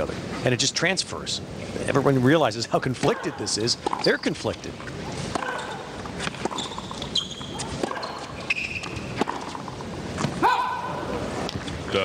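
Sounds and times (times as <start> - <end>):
low crowd hum: 0.0 - 12.0
tennis ball off rackets: 3.8 - 10.5
sneakers squeaking on court: 5.3 - 9.8.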